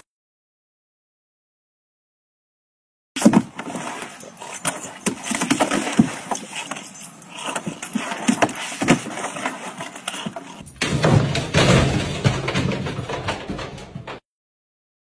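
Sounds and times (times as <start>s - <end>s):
dog paws on plastic slide: 3.2s - 10.6s.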